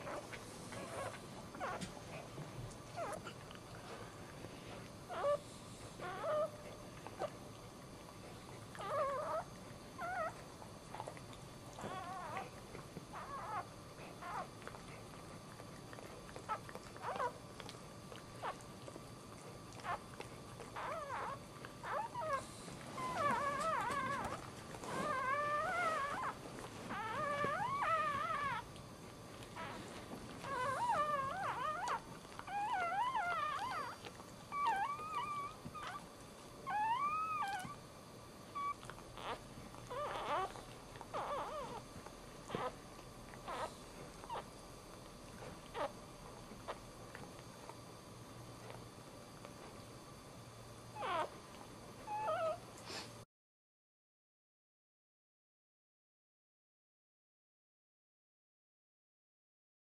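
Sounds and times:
dog licking puppy: 6.0 - 37.8
puppy crying with high squeals: 11.8 - 12.5, 13.1 - 14.5, 20.8 - 22.4, 23.0 - 28.6, 29.6 - 36.0, 36.6 - 37.8, 38.5 - 41.8, 43.4 - 44.4, 51.0 - 51.3, 52.1 - 52.6.

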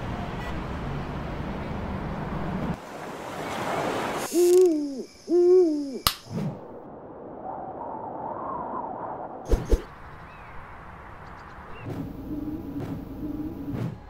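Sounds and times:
owl hoots: 4.3 - 6.2
sharp click: 6.0 - 6.3.

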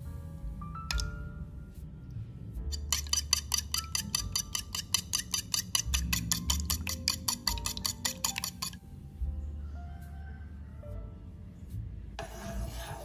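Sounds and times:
faint background music: 0.0 - 13.0
whisk clicking against bowl: 2.7 - 8.8.

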